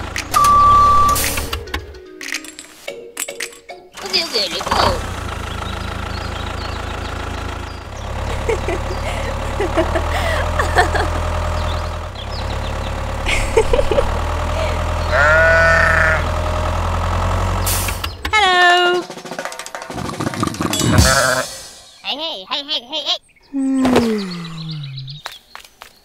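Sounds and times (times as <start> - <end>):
tractor engine rumbling: 0.0 - 25.3
sheep bleating: 15.0 - 16.3, 20.9 - 21.6.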